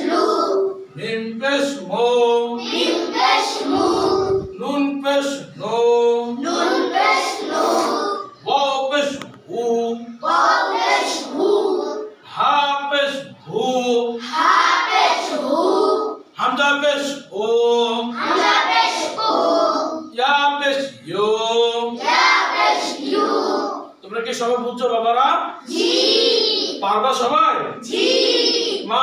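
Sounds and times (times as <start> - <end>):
children chanting in unison: 0.0 - 0.8, 2.5 - 4.6, 6.3 - 8.4, 10.2 - 12.2, 14.1 - 16.4, 18.0 - 20.1, 21.9 - 24.0, 25.6 - 26.8, 27.8 - 29.0.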